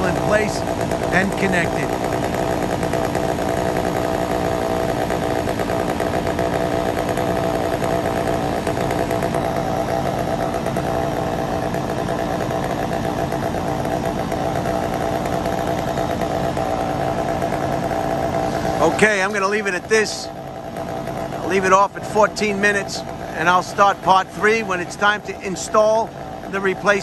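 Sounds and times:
engine humming steadily: 0.0 - 27.0.

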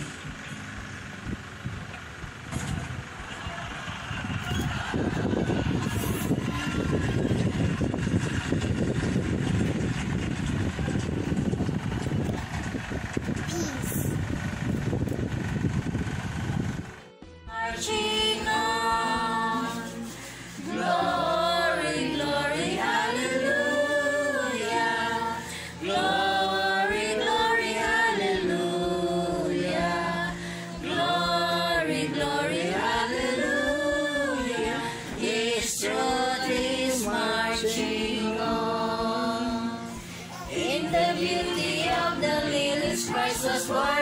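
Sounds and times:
choir-like vocals: 17.5 - 44.0.

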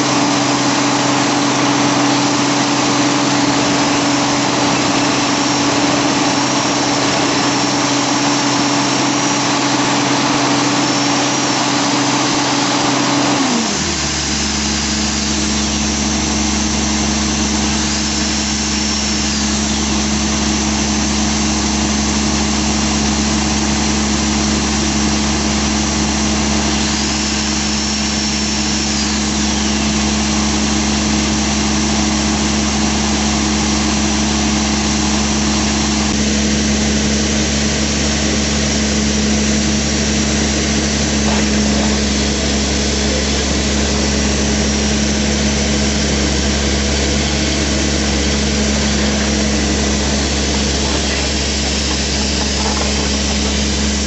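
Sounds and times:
low engine hum: 0.0 - 54.0
rock drill drilling: 0.0 - 54.0
high whine: 36.1 - 54.0.

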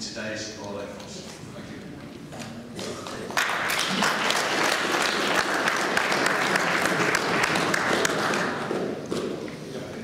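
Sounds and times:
audience applauding: 3.1 - 9.2.

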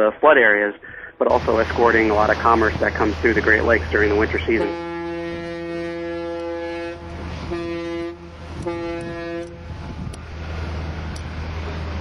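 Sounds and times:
steady low hum: 0.8 - 12.0
ship's horn blasts: 1.3 - 12.0.

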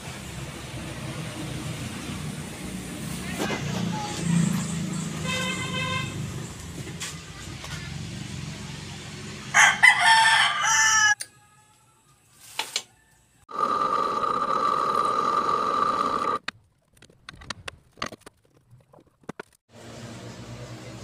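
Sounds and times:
rooster crowing: 9.5 - 11.9
drill press motor whining: 13.5 - 16.4.

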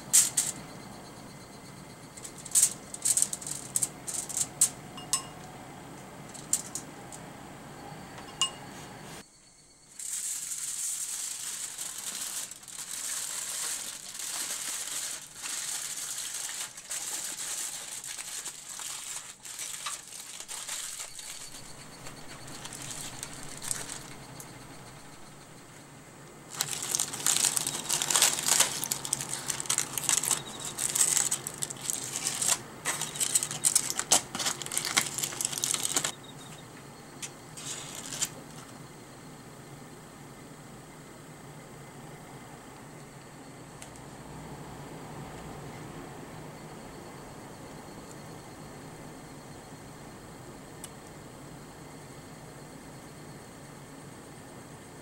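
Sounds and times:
aluminium foil crinkling: 2.2 - 4.8, 9.9 - 25.4, 26.5 - 36.1, 37.6 - 38.4.

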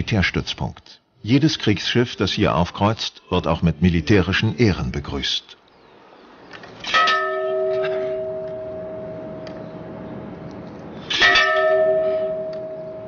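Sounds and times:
ship's bell ringing: 6.9 - 9.9, 11.2 - 13.0.

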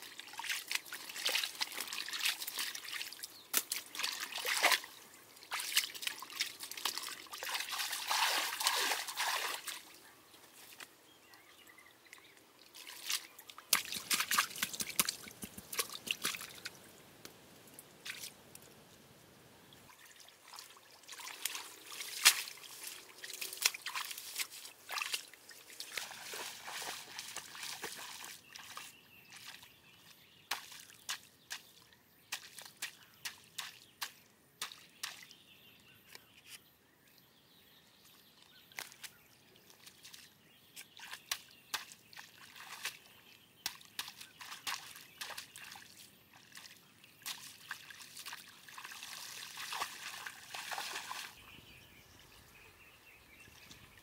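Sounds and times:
water dripping and trickling: 0.0 - 19.0, 19.7 - 29.7, 40.8 - 51.6
hands splashing in muddy water: 0.3 - 9.9, 12.8 - 16.8, 20.1 - 29.6, 40.8 - 51.4.

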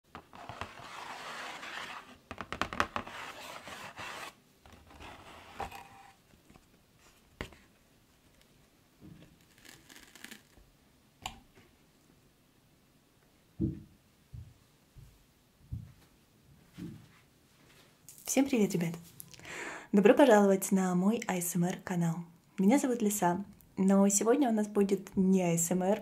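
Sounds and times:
cardboard box tearing and scraping: 0.4 - 2.2, 3.0 - 6.2.

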